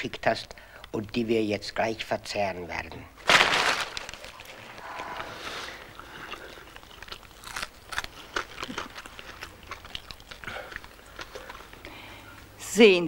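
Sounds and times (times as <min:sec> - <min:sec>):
mouth clicks and crunches: 0:03.3 - 0:12.5
man chewing food: 0:04.2 - 0:12.6.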